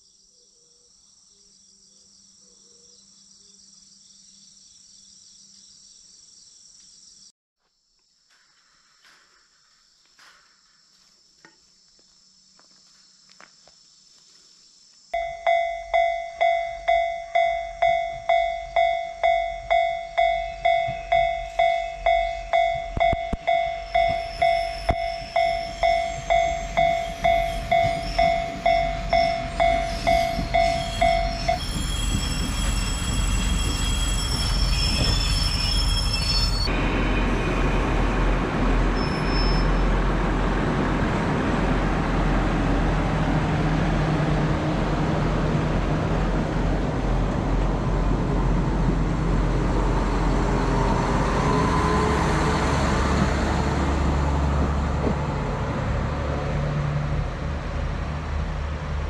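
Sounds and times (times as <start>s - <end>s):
warning bell dinging: 15.2s - 36.6s
brakes squealing: 15.9s - 59.0s
diesel engine revving: 36.7s - 59.0s.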